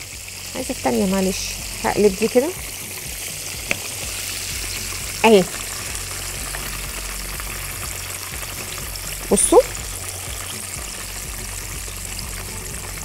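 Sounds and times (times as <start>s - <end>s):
chicken deep-frying in hot oil: 0.0s - 13.0s.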